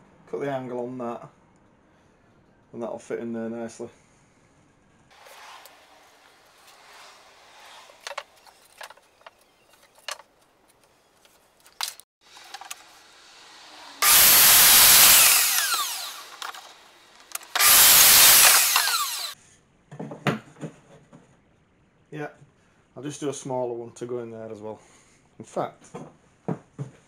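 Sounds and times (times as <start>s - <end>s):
electric mitre saw cutting wood: 5.1s - 9.4s, 12.2s - 19.4s
wood knocking and rustling: 7.9s - 12.8s, 19.9s - 21.4s, 25.8s - 27.0s
saw winding down whine: 12.3s - 19.4s.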